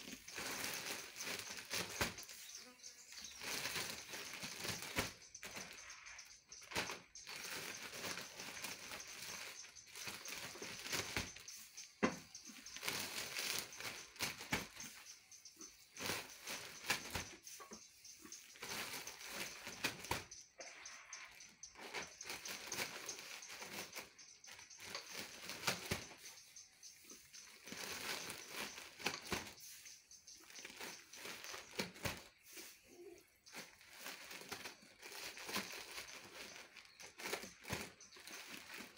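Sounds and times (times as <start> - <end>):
plastic bag crinkling: 0.0 - 11.7, 12.4 - 15.0, 18.5 - 20.4, 27.4 - 29.6, 33.4 - 38.9
dry straw rustling: 0.0 - 38.9.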